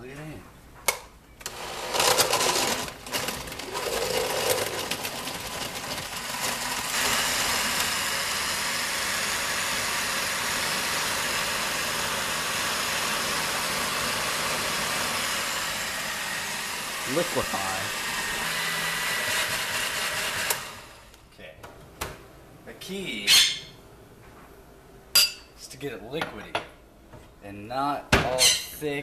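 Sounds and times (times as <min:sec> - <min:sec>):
blender crushing ice: 0:01.4 - 0:21.2.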